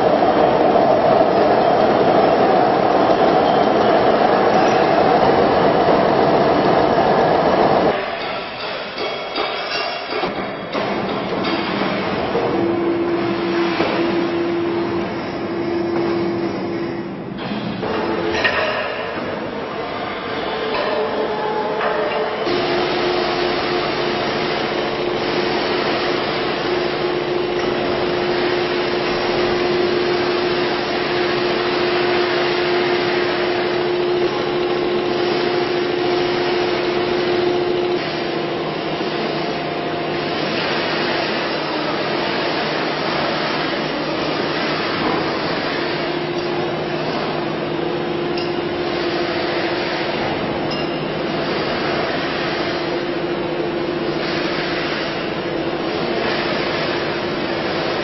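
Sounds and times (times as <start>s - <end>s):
factory machinery hiss: 0.0s - 58.0s
crane motors whining: 11.9s - 52.2s.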